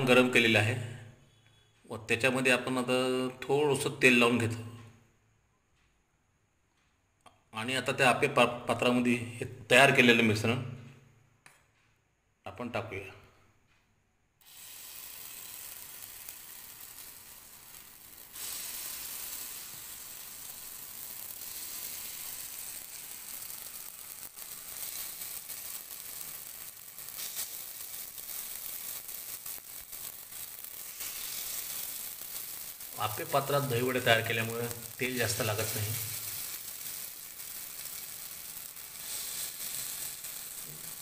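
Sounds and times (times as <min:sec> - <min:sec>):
batter sizzling in hot pan: 0:14.4 - 0:41.0.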